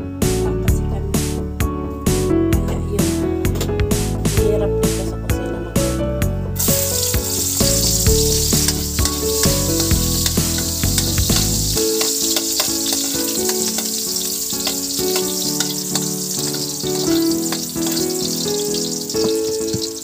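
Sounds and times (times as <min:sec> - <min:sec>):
background music: 0:00.0 - 0:20.0
metal ladle stirring in pan: 0:06.6 - 0:19.2
garlic sizzling in oil: 0:06.6 - 0:20.0.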